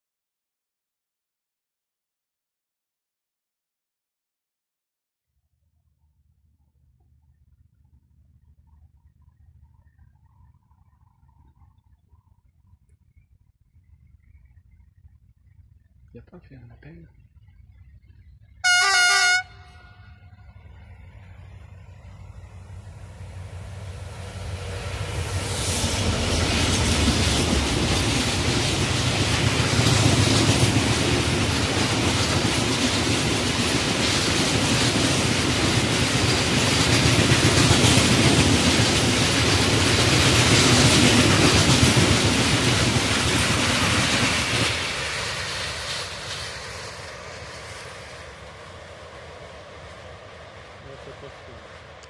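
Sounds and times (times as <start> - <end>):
train rolling rumble: 6.6 - 52.0
locomotive passing: 6.9 - 52.0.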